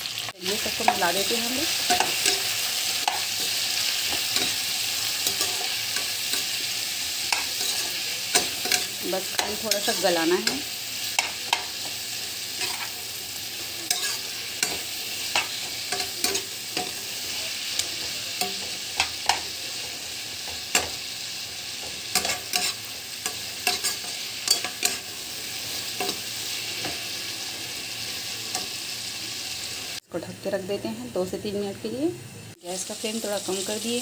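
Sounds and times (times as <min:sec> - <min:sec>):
vegetables sizzling in oil: 0:00.0 - 0:34.0
metal spatula scraping pan: 0:07.3 - 0:11.7, 0:13.8 - 0:19.4, 0:21.8 - 0:26.2.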